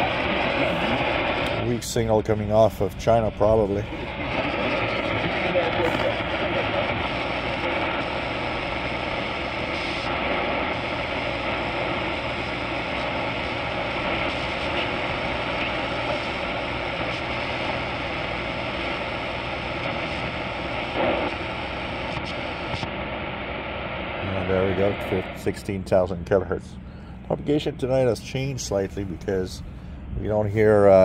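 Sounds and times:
shortwave radio static and hiss: 0.0 - 31.0.

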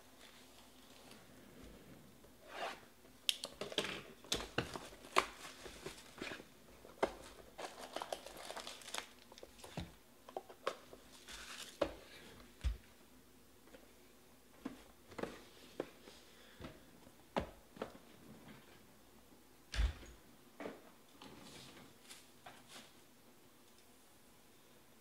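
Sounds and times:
plastic shrink-wrap crinkling and tearing: 7.2 - 9.6, 11.2 - 11.8.

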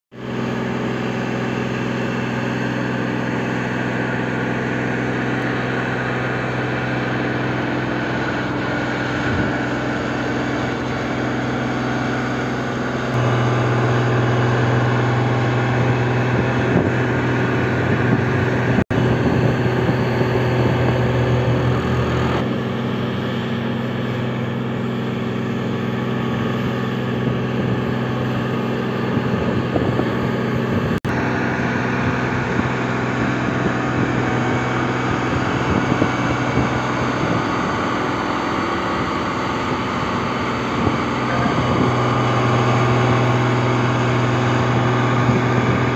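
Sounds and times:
road roller diesel engine: 0.1 - 45.9.

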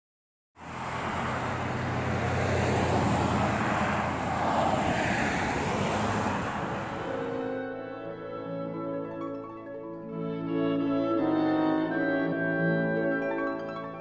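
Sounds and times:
vehicles driving by: 0.6 - 7.6.

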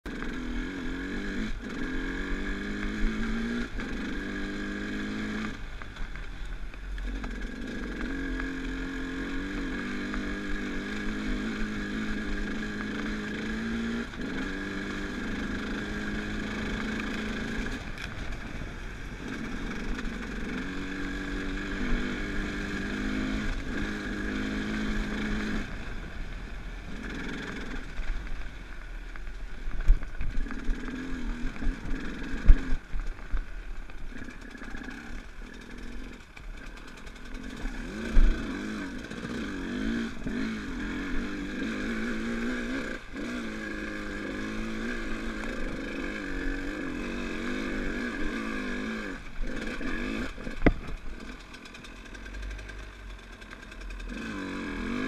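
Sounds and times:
dirt bike engine revving: 0.1 - 5.8, 7.0 - 28.4, 30.1 - 55.0.

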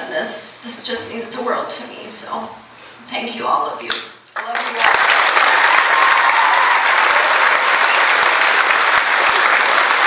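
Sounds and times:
audience clapping: 4.4 - 10.0.

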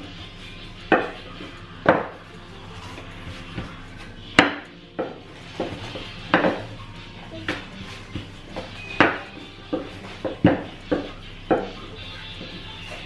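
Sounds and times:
rolling pin knocking on countertop: 1.8 - 2.2, 4.4 - 6.7, 7.5 - 11.8.

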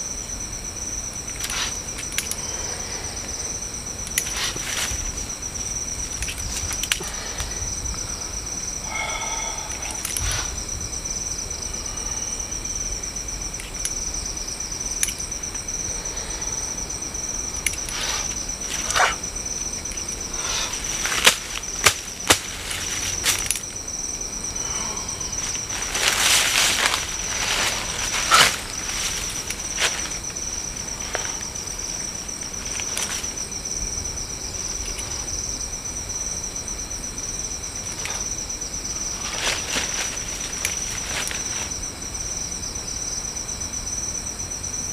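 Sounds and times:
night insect chorus: 0.0 - 44.9
dry leaf litter rustling: 20.3 - 23.7, 25.1 - 33.4, 38.9 - 41.8.

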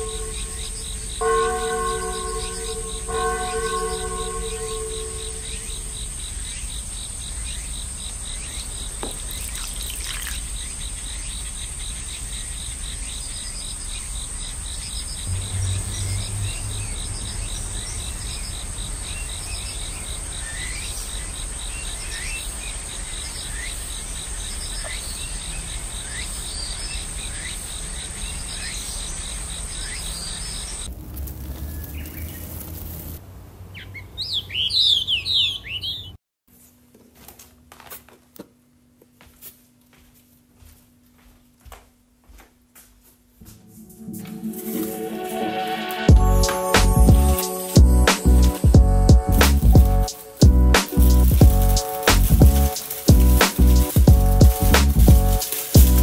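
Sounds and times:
insects trilling: 0.0 - 33.2, 46.1 - 56.0
small birds chirping: 0.0 - 36.2, 46.1 - 56.0
low rumble: 15.3 - 18.4, 43.4 - 56.0.

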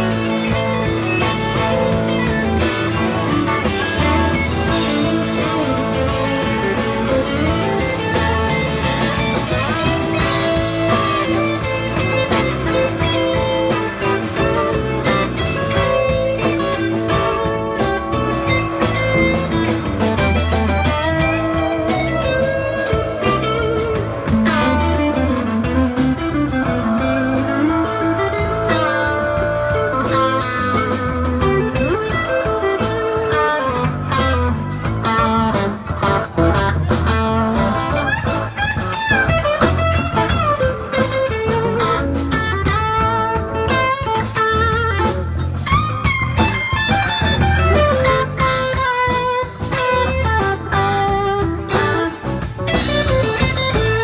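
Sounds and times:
blues-rock band playing: 0.0 - 54.0
electric guitar lead: 0.0 - 54.0.

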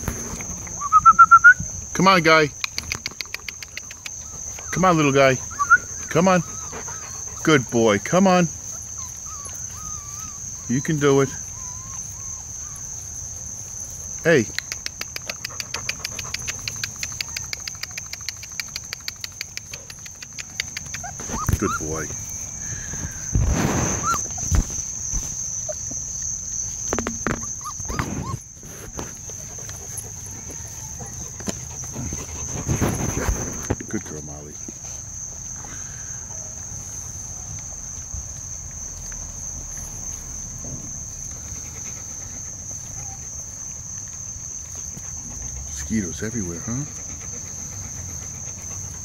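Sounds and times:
insect trill: 0.0 - 49.0
fast insect ticking: 2.1 - 4.6, 11.6 - 23.4.

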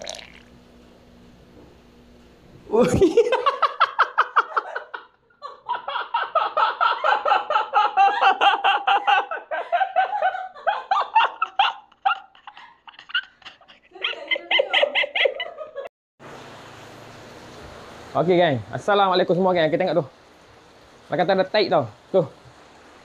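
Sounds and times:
man laughing hard: 2.7 - 15.9.

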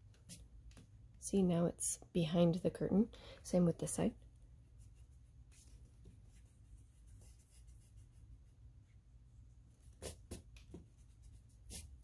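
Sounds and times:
eraser rubbing on paper: 11.1 - 12.0.

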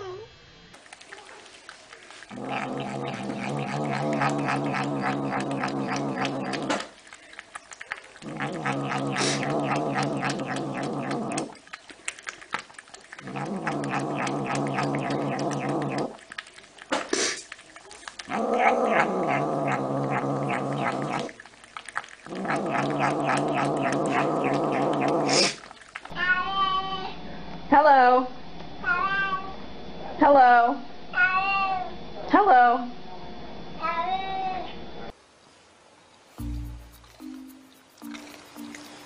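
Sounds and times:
cat growling: 2.3 - 6.9, 8.2 - 11.6, 13.1 - 16.3, 18.1 - 21.4, 22.3 - 25.6.

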